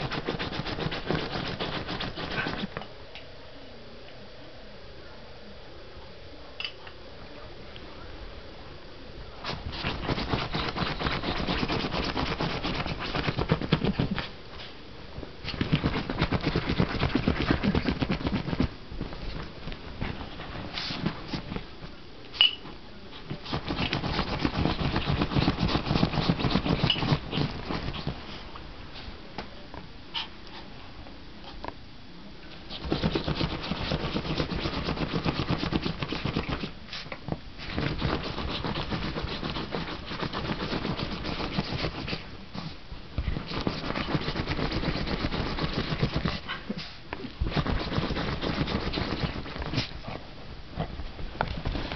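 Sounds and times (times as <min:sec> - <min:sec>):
puppy digging in fabric bedding: 0:00.0 - 0:02.7, 0:09.4 - 0:14.3, 0:15.4 - 0:21.7, 0:22.4 - 0:28.5, 0:32.7 - 0:50.2, 0:50.8 - 0:51.9.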